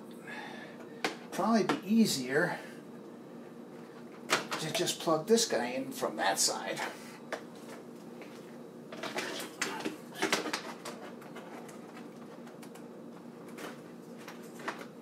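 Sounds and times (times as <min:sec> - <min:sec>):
faint steady hum: 0:00.0 - 0:15.0
cables rustling: 0:06.7 - 0:15.0.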